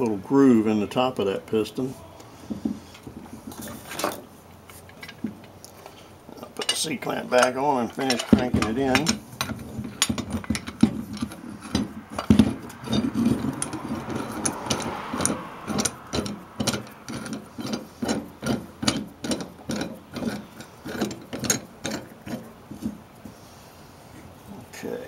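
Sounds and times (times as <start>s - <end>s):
metal clanks and knocks: 2.4s - 5.6s, 6.3s - 23.0s.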